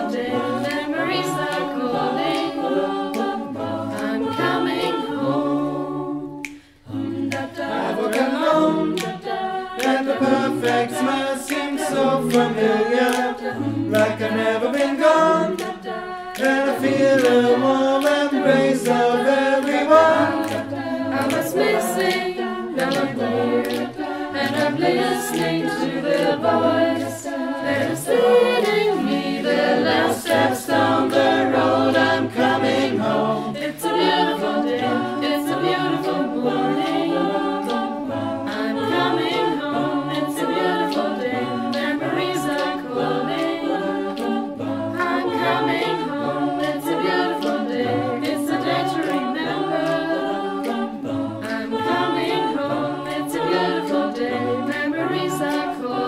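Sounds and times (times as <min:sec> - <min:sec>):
a cappella choir singing: 0:00.0 - 0:56.0
sharp percussive clicks: 0:06.4 - 0:27.2.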